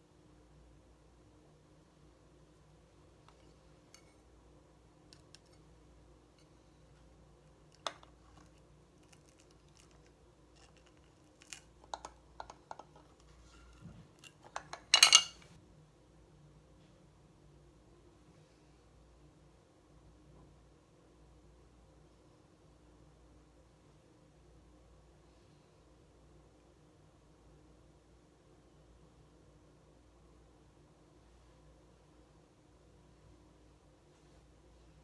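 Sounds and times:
makeup items clicking: 7.7s - 13.2s.

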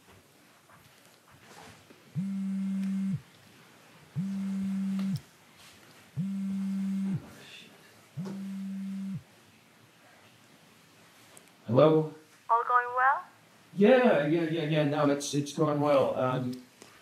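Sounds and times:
phone vibrating: 2.2s - 3.2s, 4.2s - 5.2s, 6.2s - 7.3s, 8.2s - 9.2s.

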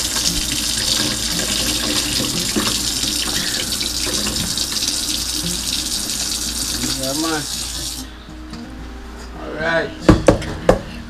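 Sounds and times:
faucet running into sink: 0.0s - 8.1s.

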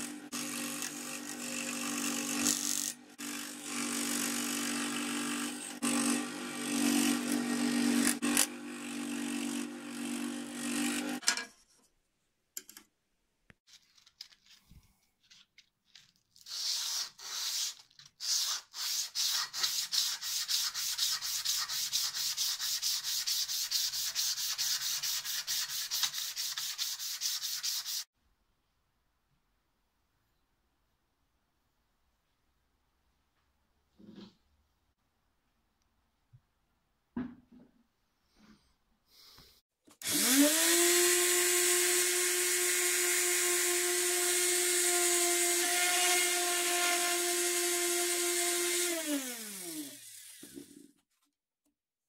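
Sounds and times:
scroll saw cutting wood: 0.0s - 11.3s, 16.4s - 28.1s, 40.0s - 51.0s
sandpaper scraping: 13.7s - 28.1s.

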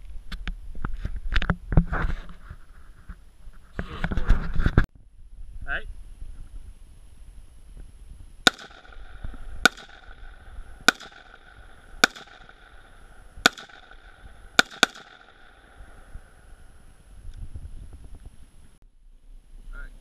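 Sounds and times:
rifle shots: 8.4s - 16.6s.

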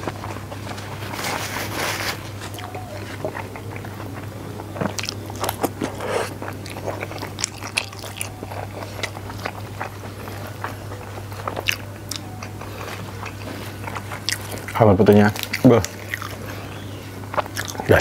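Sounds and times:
low hum: 0.0s - 18.0s
man chewing wet smacks: 2.4s - 18.0s.

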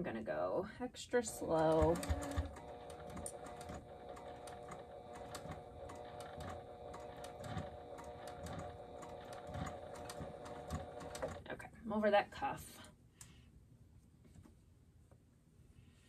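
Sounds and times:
sewing machine motor whine: 1.4s - 11.4s
needle mechanism ticking: 1.6s - 11.4s.

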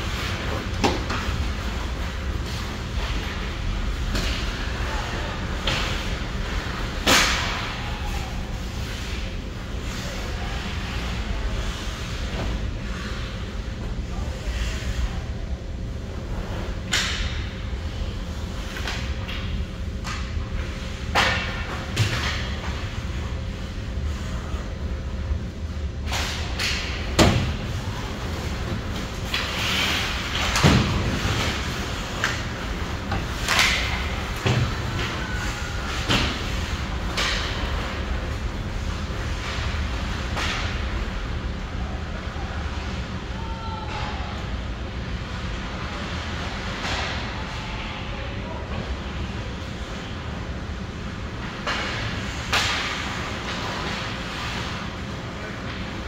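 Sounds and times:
rink background noise: 0.0s - 56.0s
skates scraping hiss: 28.2s - 38.0s.

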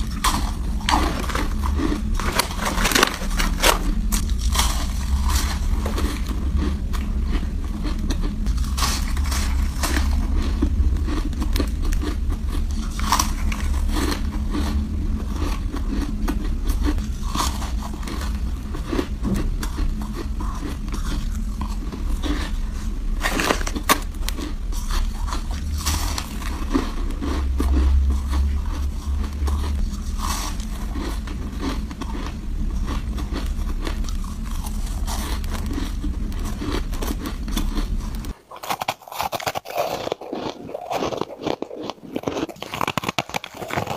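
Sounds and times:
steady low rumble: 0.0s - 38.5s
ice being chewed: 0.0s - 43.9s.

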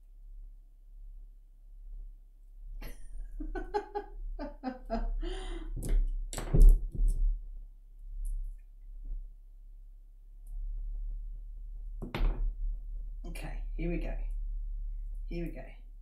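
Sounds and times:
thumps and rustles: 5.8s - 7.4s.

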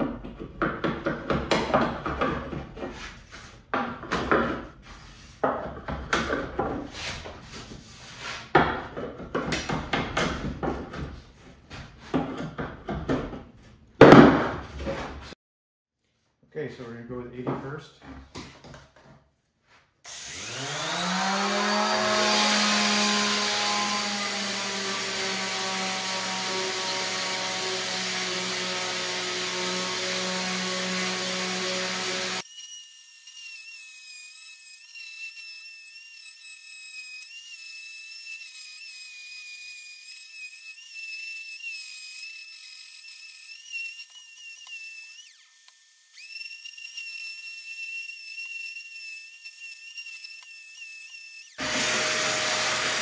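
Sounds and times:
electric sander on wood: 20.1s - 53.0s.

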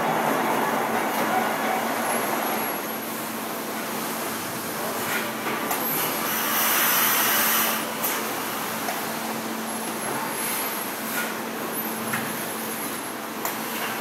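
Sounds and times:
machinery hum: 0.0s - 5.4s.

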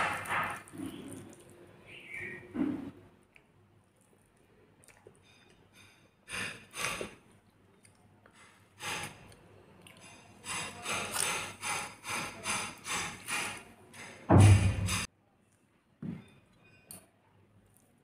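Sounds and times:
wet chewing and squishing: 0.0s - 2.3s, 3.3s - 5.8s, 6.8s - 11.6s.

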